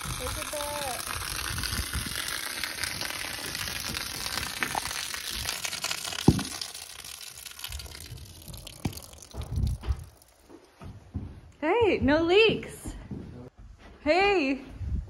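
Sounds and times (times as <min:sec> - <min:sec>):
water pouring and splashing: 0:00.0 - 0:10.7
low thumps: 0:07.9 - 0:13.3.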